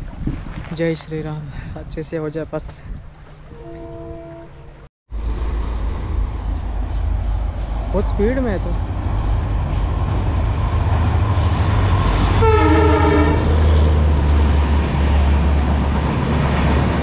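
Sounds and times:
train passing with heavy rumble: 3.4s - 17.0s
train horn blast: 3.5s - 4.8s, 12.0s - 13.5s.

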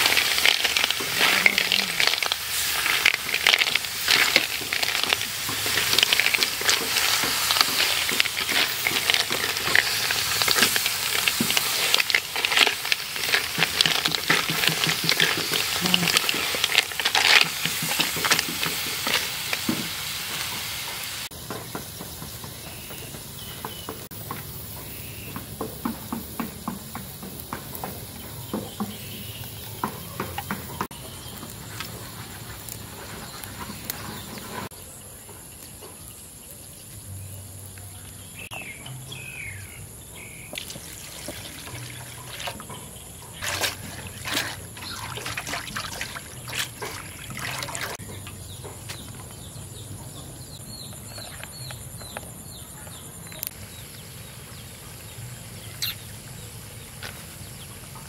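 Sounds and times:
birds chirping: 0.0s - 58.0s
water pouring into metal bowl: 40.6s - 42.7s, 43.4s - 48.0s.

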